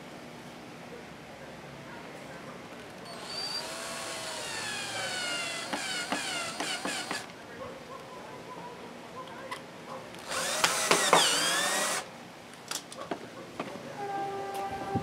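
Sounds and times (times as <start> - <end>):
cordless drill whining: 3.1 - 7.3, 10.2 - 12.1
drill clicking: 3.1 - 7.3, 10.2 - 12.1.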